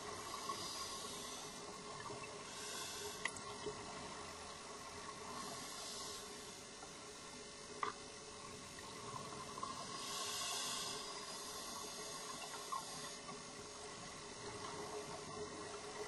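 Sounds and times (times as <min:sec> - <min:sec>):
scuba regulator hiss and bubbling: 0:00.0 - 0:03.3, 0:05.2 - 0:06.6, 0:09.7 - 0:13.3
underwater breath hissing: 0:00.2 - 0:01.8, 0:02.4 - 0:03.3, 0:05.2 - 0:06.6, 0:09.8 - 0:13.3.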